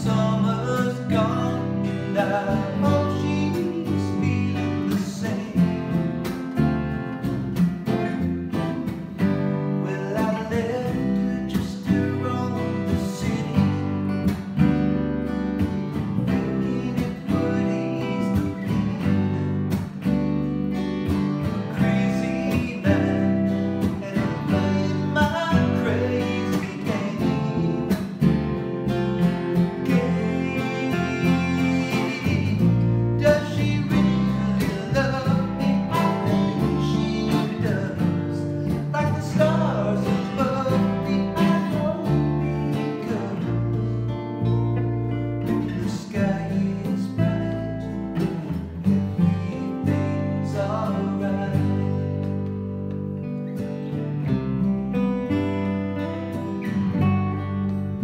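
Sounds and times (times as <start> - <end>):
man singing: 0.0 - 6.3, 9.6 - 14.2, 16.1 - 19.7, 21.4 - 44.2, 45.4 - 52.5
acoustic guitars strummed: 0.0 - 58.0
electric bass: 0.0 - 58.0.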